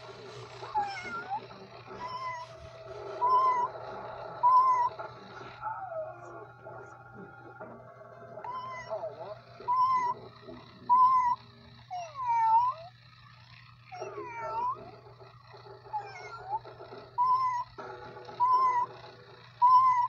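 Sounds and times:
steady low hum: 0.0 - 20.0
toy cat meowing: 0.5 - 6.3, 8.4 - 13.0, 13.9 - 15.0, 15.9 - 20.0.

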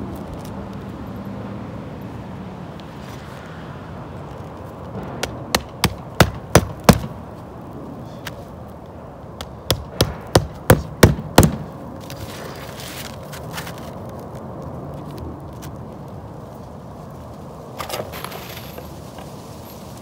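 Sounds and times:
hammer striking roofing nails: 5.2 - 7.2, 9.4 - 11.7.

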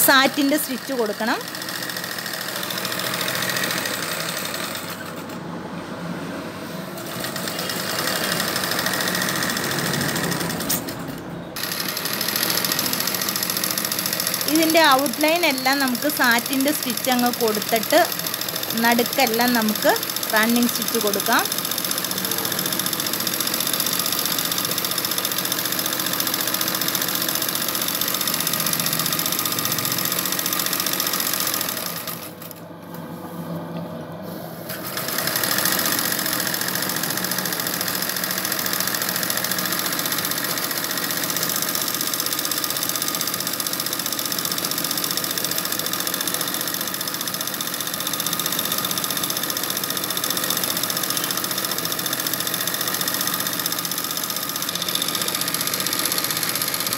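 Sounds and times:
sewing machine stitching: 0.0 - 5.4, 6.9 - 33.0, 34.7 - 56.9.

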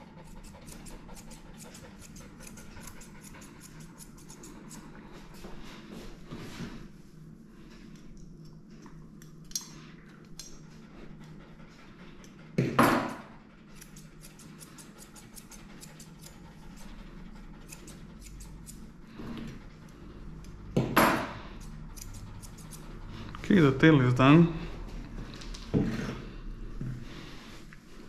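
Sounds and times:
scissors snipping hair: 0.2 - 4.9, 13.8 - 16.9, 17.6 - 18.8, 21.6 - 22.8.

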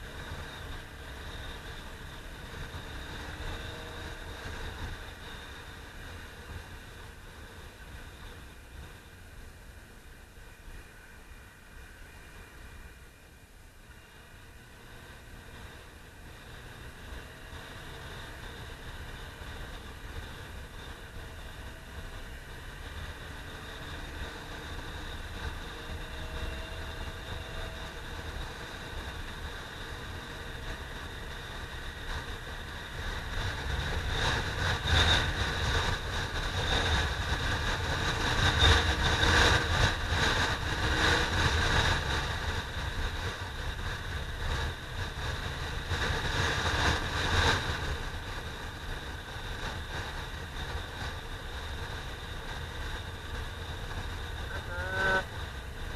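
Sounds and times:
motorcycle engine running: 13.9 - 55.9
wind rushing over camera: 14.0 - 55.9.

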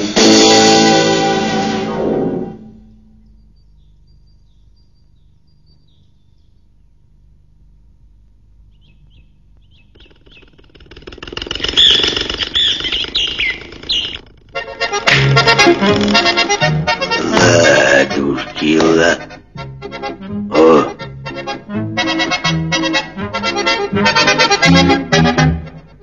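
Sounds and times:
accordion music: 0.0 - 3.2, 14.4 - 26.0
bird-like chirps: 3.2 - 7.0, 8.7 - 14.3
chirping whistles: 8.7 - 10.6, 11.6 - 14.2.

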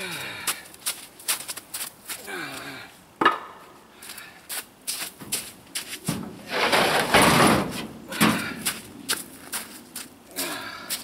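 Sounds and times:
footsteps: 0.1 - 11.0
concrete block knocking: 3.2 - 3.5
block scraping: 6.4 - 7.9.

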